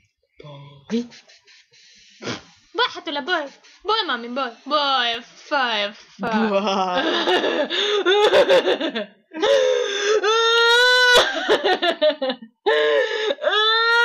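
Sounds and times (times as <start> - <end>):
person crying and whimpering: 6.2 - 11.8, 12.7 - 14.0.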